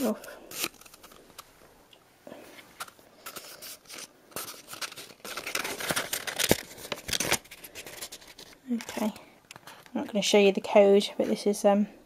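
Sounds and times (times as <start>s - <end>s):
paper rustling and scraping: 0.0s - 1.4s, 2.6s - 9.1s.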